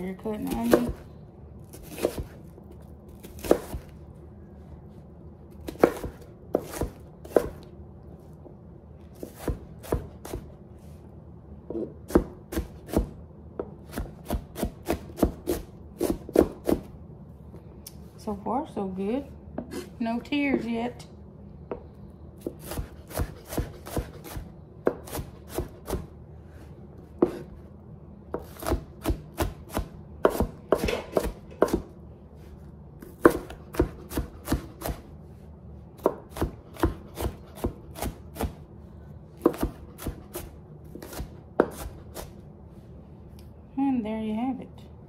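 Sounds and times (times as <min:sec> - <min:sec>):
knife chopping on cutting board: 0:01.7 - 0:02.4, 0:03.2 - 0:03.9, 0:05.6 - 0:07.6, 0:09.2 - 0:10.5, 0:11.7 - 0:16.9, 0:22.4 - 0:26.1, 0:27.2 - 0:27.6, 0:28.3 - 0:31.9, 0:33.0 - 0:35.0, 0:36.0 - 0:38.6, 0:39.4 - 0:42.4.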